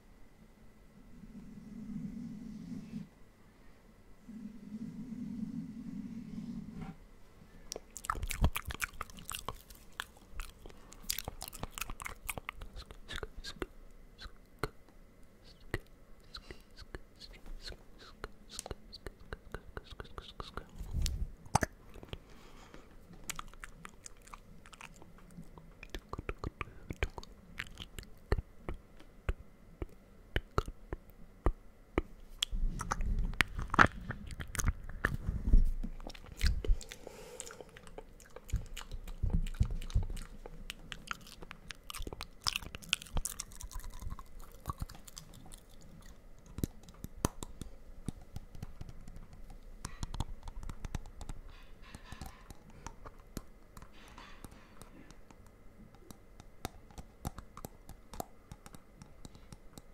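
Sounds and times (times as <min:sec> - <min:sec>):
low rumbling: 0:00.8 - 0:03.2, 0:04.1 - 0:07.2
wet mouth clicks and smacks: 0:07.7 - 0:22.2, 0:23.2 - 0:30.8, 0:35.9 - 0:59.9.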